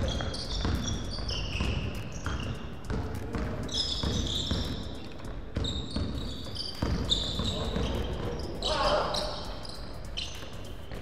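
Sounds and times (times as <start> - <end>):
basketball dribbling on wooden floor: 0.0 - 8.5
sneakers squeaking: 0.0 - 11.0.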